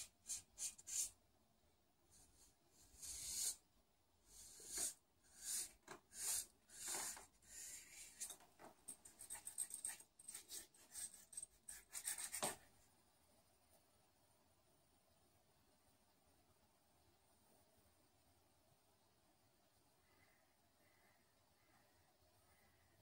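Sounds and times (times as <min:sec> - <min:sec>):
marker pen scratching on paper: 0:00.0 - 0:01.2, 0:02.1 - 0:03.6, 0:04.3 - 0:08.4, 0:09.0 - 0:12.7.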